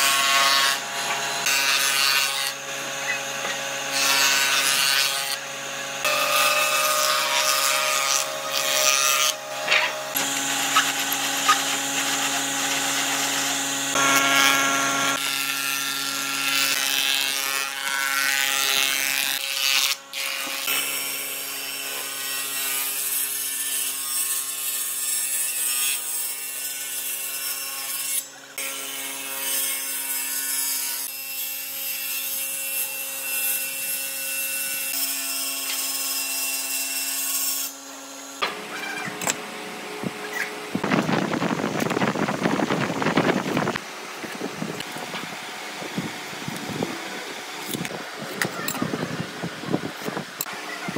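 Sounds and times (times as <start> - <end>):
jointer planer machine hum: 0.0 - 17.2
knives cutting wood: 6.0 - 15.6, 47.6 - 48.9.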